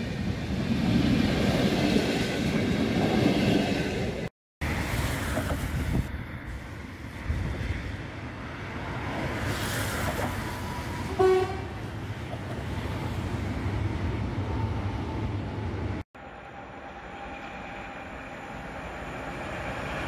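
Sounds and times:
train wheels rumbling on rail: 0.0 - 16.0
train horn toot: 11.1 - 11.8.

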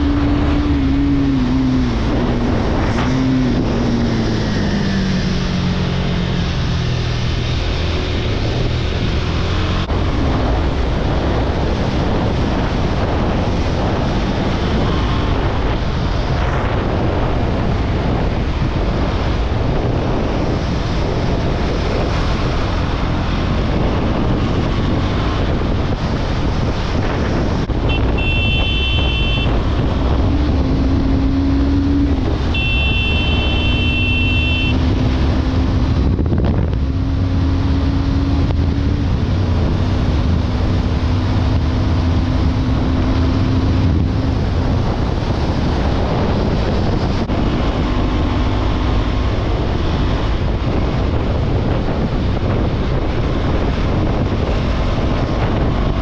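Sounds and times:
motorcycle engine at speed: 0.0 - 56.0
wind rush on microphone: 0.0 - 56.0
brief high-pitched tone: 32.6 - 34.8.

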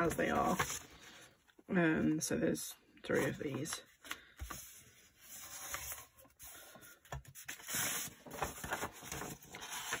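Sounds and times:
paper rustling and sliding: 4.1 - 10.0.

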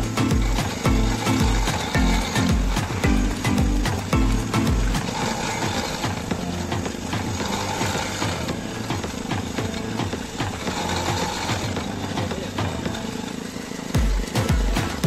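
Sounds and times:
loud deep music beats: 0.0 - 13.0, 14.0 - 15.0
juice crusher rhythmic knock: 0.0 - 15.0.

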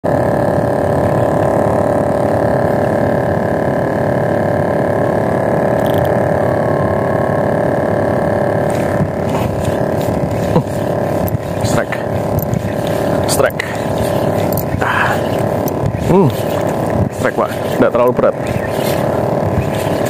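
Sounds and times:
boat engine running: 0.0 - 20.0
wind buffeting microphone: 8.5 - 20.0.

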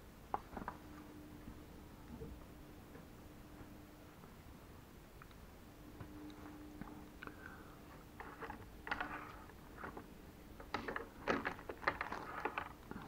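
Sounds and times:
plastic packaging crinkling: 8.2 - 13.0
small plastic parts clicking: 8.2 - 13.0.

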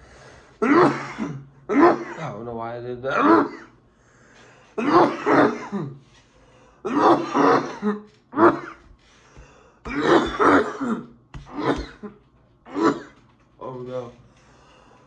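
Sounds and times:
man clearing throat: 0.6 - 3.8, 4.8 - 6.0, 6.8 - 8.8, 9.8 - 13.2
man coughing hard: 0.6 - 3.8, 4.8 - 6.0, 6.8 - 8.8, 9.8 - 13.2.

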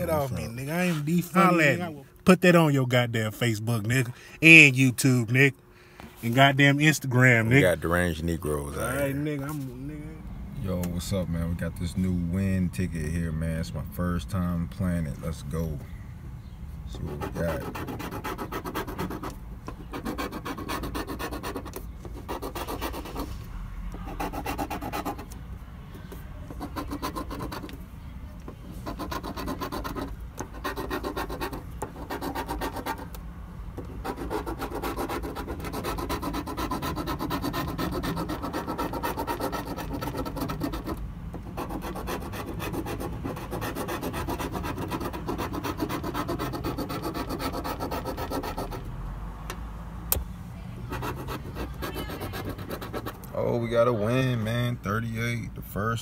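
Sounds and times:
lottery ticket being scratched: 16.9 - 25.4, 26.3 - 27.8, 28.6 - 33.2, 33.8 - 48.8, 50.9 - 53.7.

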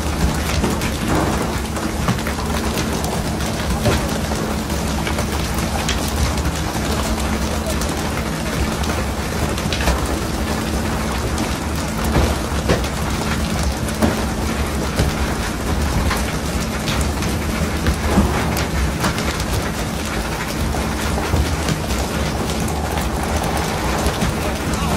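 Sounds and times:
water spray falling on sea: 0.0 - 24.9
boat engine hum: 16.5 - 24.9.

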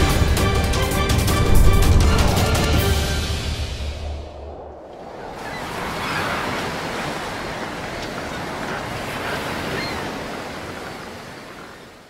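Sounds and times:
ocean surf washing onto beach: 1.2 - 12.0.

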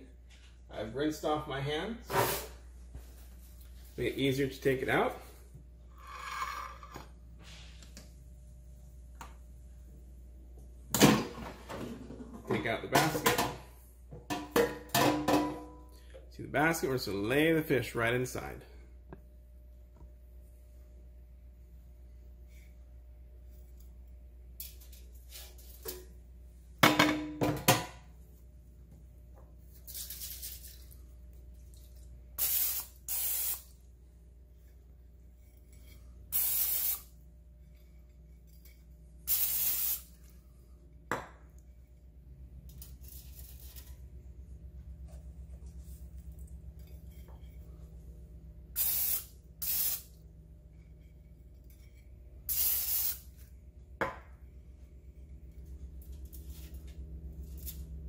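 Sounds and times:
aerosol spray can hissing: 32.4 - 33.7, 36.3 - 37.1, 39.3 - 40.1, 48.8 - 50.1, 52.5 - 53.3.

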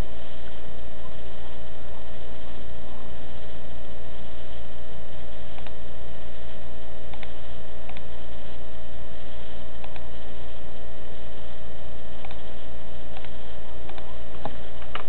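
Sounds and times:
electrical hum and hiss: 0.0 - 15.0
computer mouse clicks: 5.6 - 5.8, 7.1 - 8.1, 9.8 - 10.1, 12.2 - 12.5, 13.1 - 15.0.

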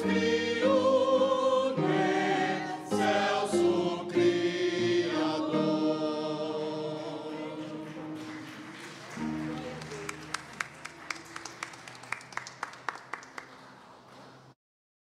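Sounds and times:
choir singing held chord: 0.0 - 8.6
people clapping: 7.7 - 14.6.

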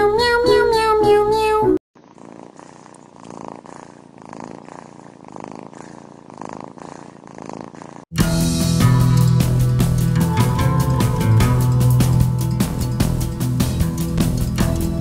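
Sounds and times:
kitten purring: 2.0 - 8.1
music: 8.1 - 15.0.

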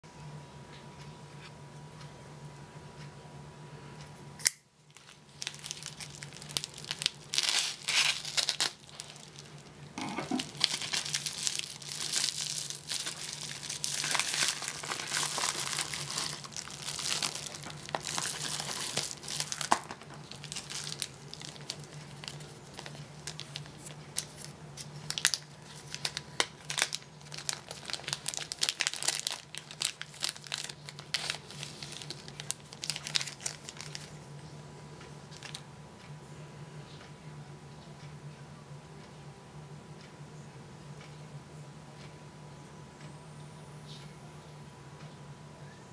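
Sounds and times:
plastic envelope tearing and crinkling: 4.9 - 34.2
plastic bag rustling: 4.9 - 34.3.

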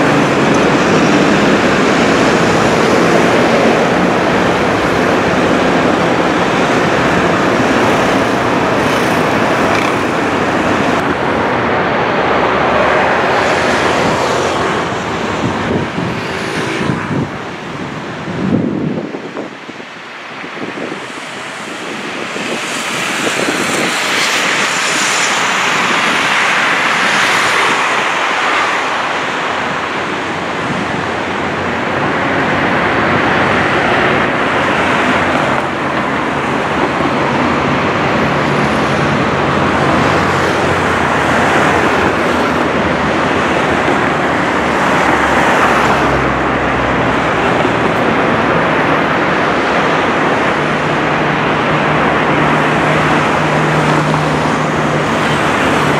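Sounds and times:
motorcycle passing: 0.0 - 11.6
cars passing: 0.0 - 55.9
loud rushing traffic noise: 0.0 - 55.9.

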